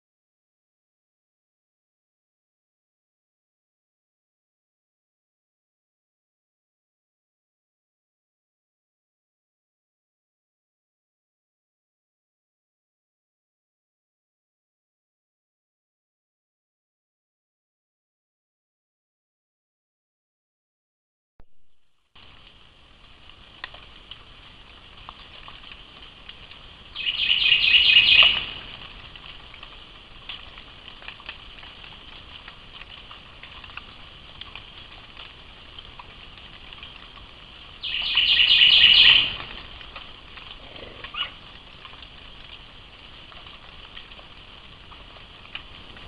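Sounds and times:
loud rattling calls: 0:27.0 - 0:28.7, 0:37.8 - 0:39.5.

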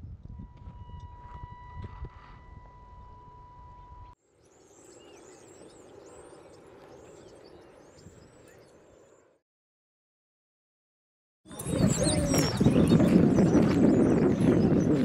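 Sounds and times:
wind rumbling on microphone: 0:00.0 - 0:04.2, 0:06.1 - 0:08.6, 0:11.5 - 0:15.0
high-pitched tone: 0:00.4 - 0:04.2
small birds chirping: 0:03.8 - 0:09.3, 0:11.5 - 0:15.0.

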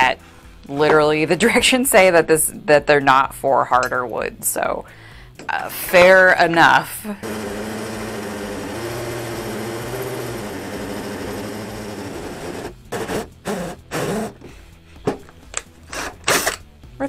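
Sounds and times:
drill cutting through wood: 0:07.2 - 0:14.4.

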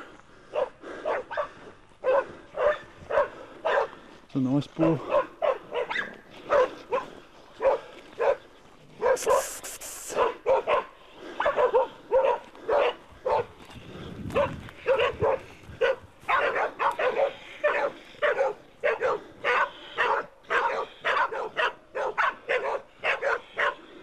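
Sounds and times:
dogs barking: 0:00.4 - 0:04.1, 0:04.8 - 0:13.6, 0:14.3 - 0:24.0
brief hiss: 0:09.2 - 0:10.2.

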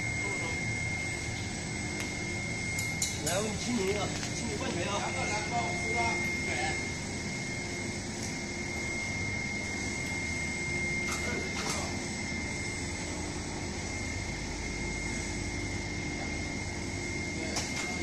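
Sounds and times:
high-pitched whine: 0:00.0 - 0:18.0
machine humming: 0:00.0 - 0:18.0.

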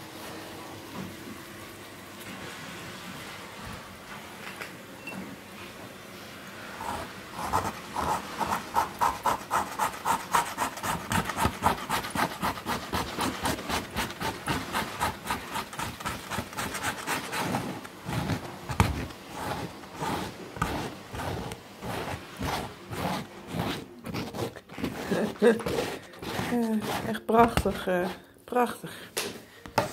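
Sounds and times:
palette knife scraping paint: 0:06.8 - 0:28.3.

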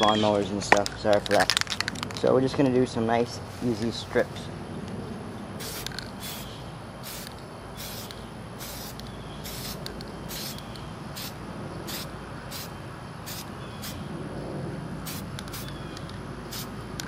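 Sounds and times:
steady low rumble: 0:00.5 - 0:17.0
spray paint can hissing: 0:05.6 - 0:14.0, 0:15.0 - 0:15.8, 0:16.5 - 0:17.0.

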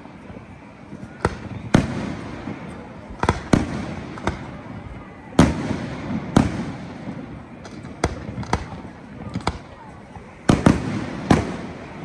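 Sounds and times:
rolling echo: 0:00.0 - 0:12.0.

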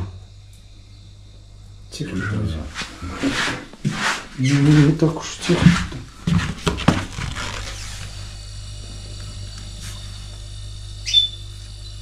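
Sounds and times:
refrigerator compressor humming: 0:00.0 - 0:12.0.

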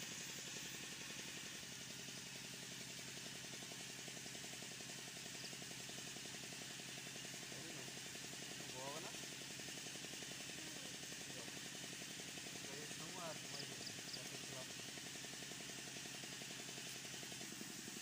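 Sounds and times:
faint engine idling: 0:00.0 - 0:18.0.

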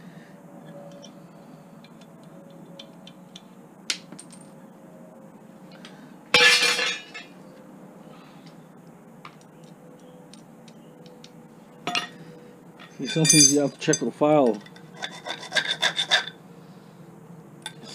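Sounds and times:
metal scrap clattering: 0:06.4 - 0:07.3.

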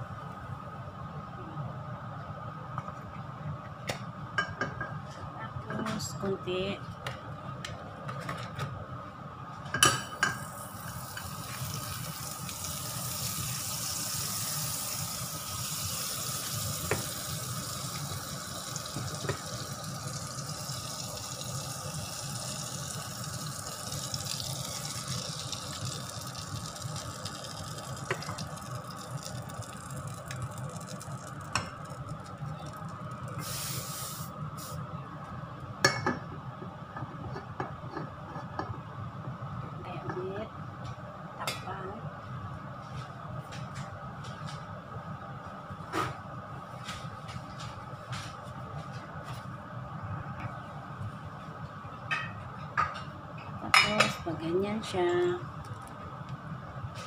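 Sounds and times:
butter sizzling in a pan: 0:10.3 - 0:34.3.

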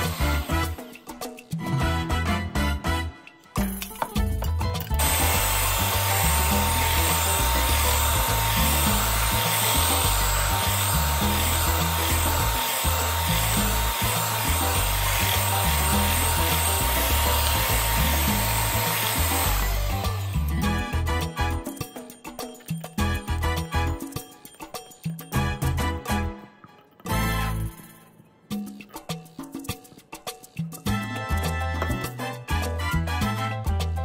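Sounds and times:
electric hand mixer whining: 0:00.0 - 0:00.8, 0:05.0 - 0:21.6
background music: 0:00.0 - 0:34.0.

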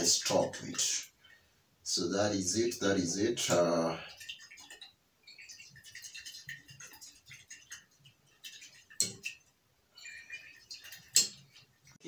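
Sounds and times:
small glass ticks: 0:04.2 - 0:12.0.

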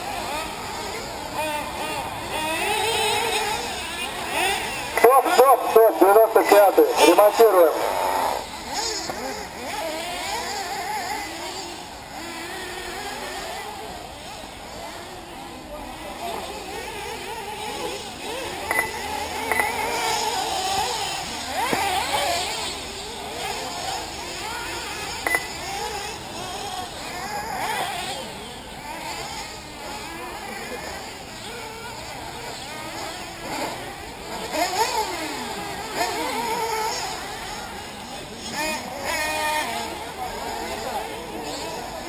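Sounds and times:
model car engines whining: 0:00.0 - 0:42.0
short high beeps: 0:18.7 - 0:19.7, 0:25.2 - 0:25.6.

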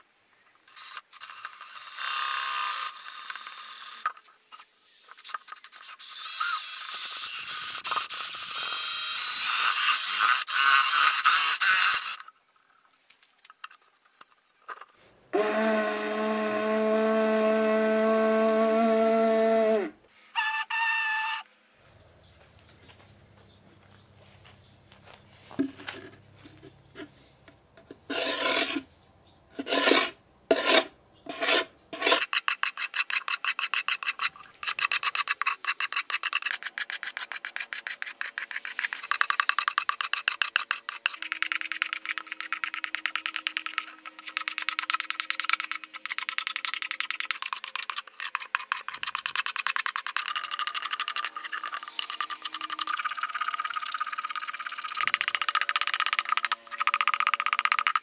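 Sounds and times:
rasp filing horn: 0:15.3 - 0:21.3, 0:28.1 - 0:28.9.

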